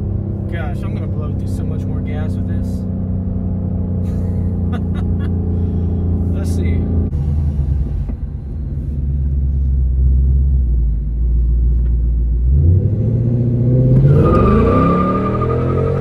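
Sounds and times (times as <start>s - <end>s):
car exhaust rumble: 0.0s - 16.0s
engine revving: 12.4s - 16.0s.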